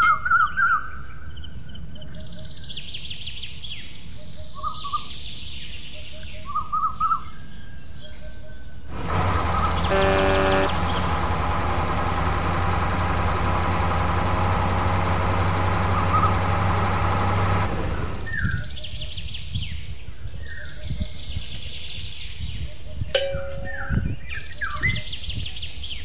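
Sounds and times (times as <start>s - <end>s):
engine humming: 8.9s - 18.8s
birds chirping: 8.9s - 19.5s
short pitched tone: 9.6s - 11.1s.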